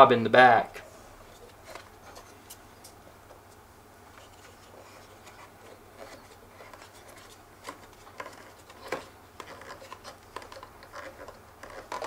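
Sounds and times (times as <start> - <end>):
hands scratching plastic: 1.3 - 12.0.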